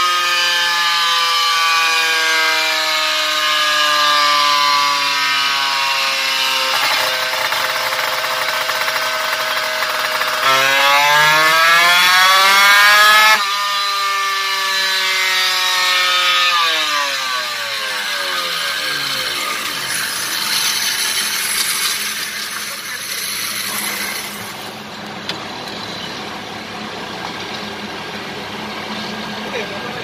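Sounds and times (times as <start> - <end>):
motorcycle engine revving: 4.8 - 25.0.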